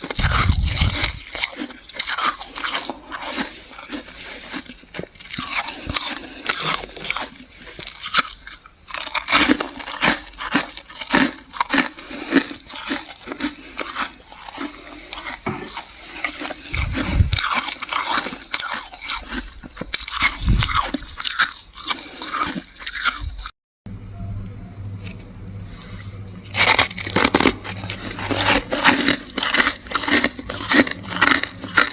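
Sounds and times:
frost crunching as chewed: 0:00.0 - 0:23.6, 0:24.4 - 0:31.9.

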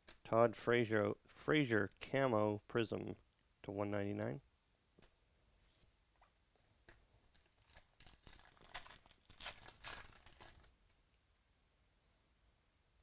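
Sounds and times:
foil wrapper tearing and crinkling: 0:07.3 - 0:10.7.

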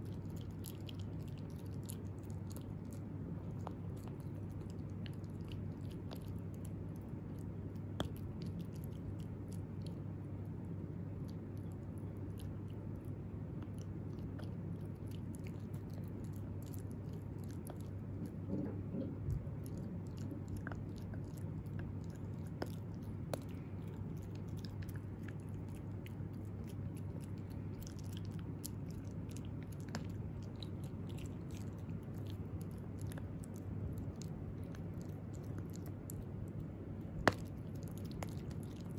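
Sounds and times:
low steady hum: 0:00.0 - 0:38.9
puppy chewing stick: 0:00.0 - 0:38.9.

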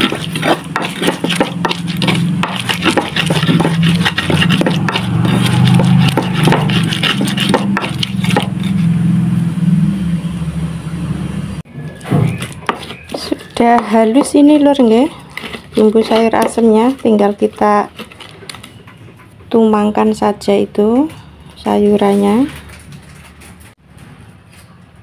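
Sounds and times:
pestle grinding in stone mortar: 0:00.0 - 0:09.0, 0:11.8 - 0:19.0
low hum: 0:01.6 - 0:12.0.

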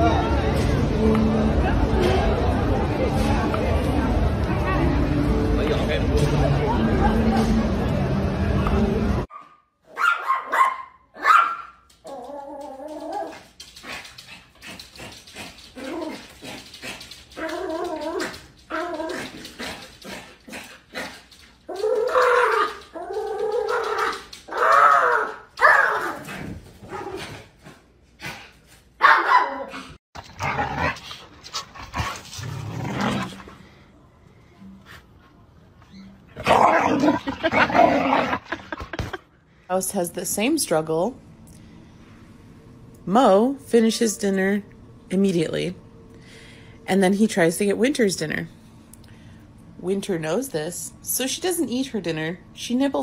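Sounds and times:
dogs barking: 0:09.3 - 0:11.8, 0:21.7 - 0:26.3, 0:29.0 - 0:29.8.

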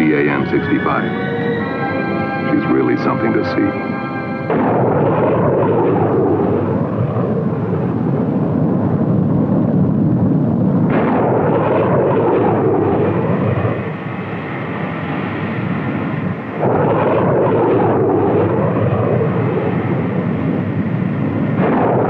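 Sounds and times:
jet aircraft flying low past: 0:00.0 - 0:08.2.

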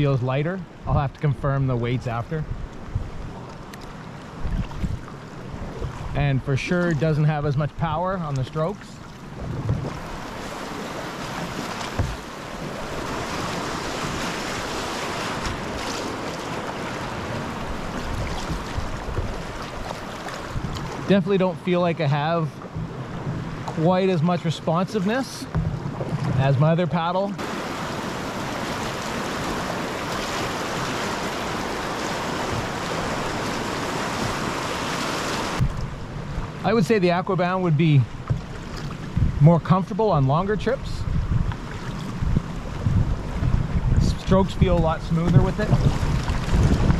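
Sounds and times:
wind noise on microphone: 0:02.4 - 0:03.5, 0:04.4 - 0:06.2, 0:09.3 - 0:16.2, 0:17.0 - 0:21.1, 0:27.4 - 0:36.6, 0:38.1 - 0:46.9
kayak paddle splashing: 0:02.5 - 0:36.7, 0:37.6 - 0:39.4, 0:41.1 - 0:46.9
rushing whitewater: 0:09.9 - 0:25.5, 0:26.4 - 0:35.7, 0:43.9 - 0:46.9.

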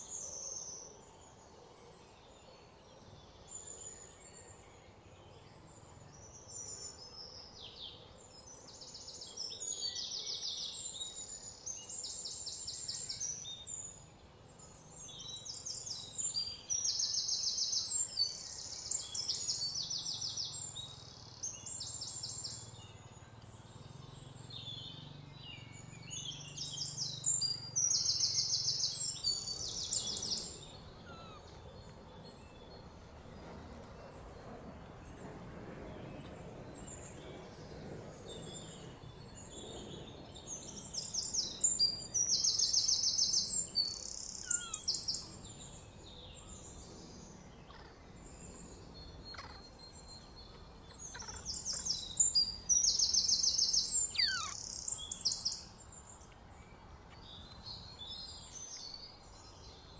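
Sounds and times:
birds trilling: 0:49.3 - 0:49.8, 0:50.9 - 0:55.5.

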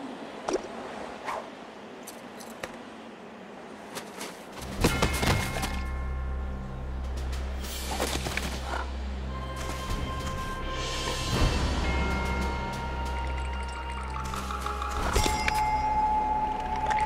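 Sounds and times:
background music with low bass: 0:04.6 - 0:17.0.

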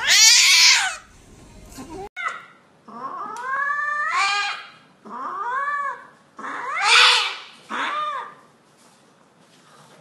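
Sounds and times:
cat yowling: 0:00.0 - 0:01.0, 0:02.2 - 0:08.4.

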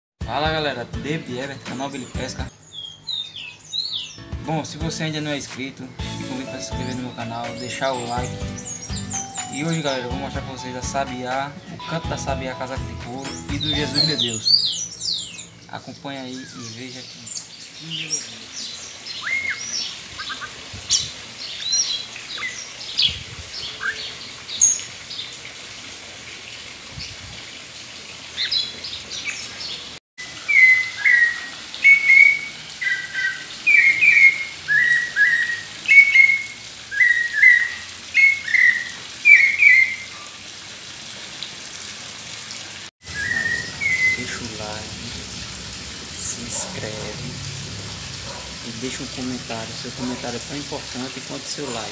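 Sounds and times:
bird chirping: 0:02.0 - 0:04.3, 0:06.0 - 0:11.1, 0:13.1 - 0:24.8, 0:43.1 - 0:45.2
bird whistling two-note phrases: 0:43.1 - 0:44.4.

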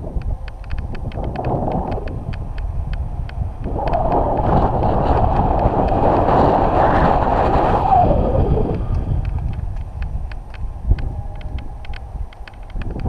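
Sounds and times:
wind buffeting microphone: 0:00.0 - 0:13.0
faint regular ticking: 0:00.1 - 0:03.7, 0:08.8 - 0:13.0.

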